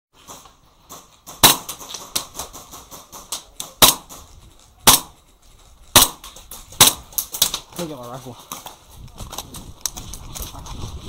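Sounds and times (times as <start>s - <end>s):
airsoft gun shots: 0.3s - 4.2s, 4.8s - 5.2s, 5.9s - 7.6s.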